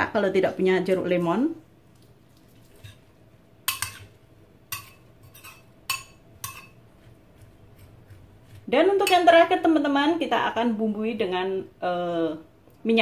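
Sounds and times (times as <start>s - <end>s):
metal spoon clinking ceramic bowl: 3.7s - 4.1s, 4.7s - 6.8s.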